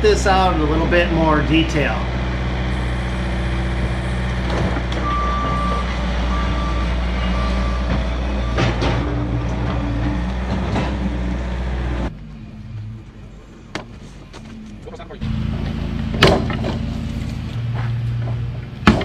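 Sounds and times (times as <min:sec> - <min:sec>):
diesel engine running: 0:00.0 - 0:19.0
backup alarm beeping: 0:02.7 - 0:08.8.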